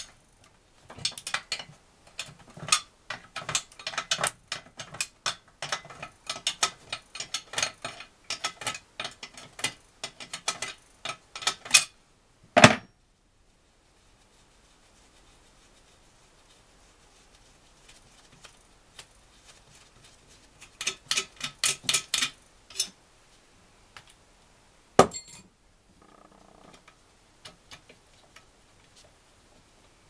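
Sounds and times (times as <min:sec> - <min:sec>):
loud metal clank: 0:25.0 - 0:25.4.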